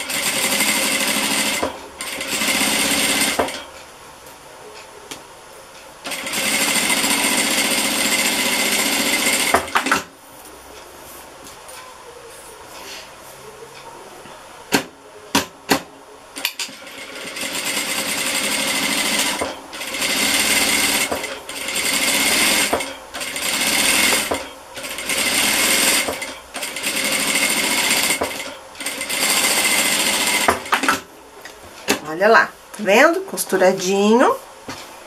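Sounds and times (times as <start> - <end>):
industrial sewing machine stitching: 0.0 - 3.7, 6.0 - 10.1, 16.4 - 31.1.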